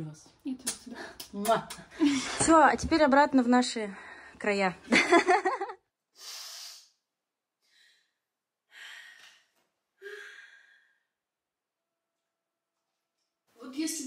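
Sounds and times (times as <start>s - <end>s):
woman breathing: 3.9s - 4.4s, 6.1s - 11.2s.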